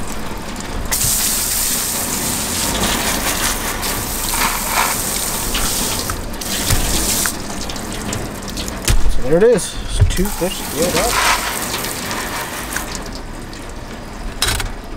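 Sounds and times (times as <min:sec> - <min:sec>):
hose nozzle spraying water: 0:00.9 - 0:08.8, 0:10.2 - 0:13.2.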